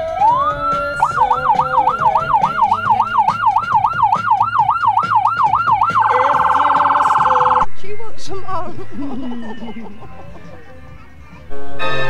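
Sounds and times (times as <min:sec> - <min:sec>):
emergency vehicle siren wailing: 0:00.0 - 0:07.7.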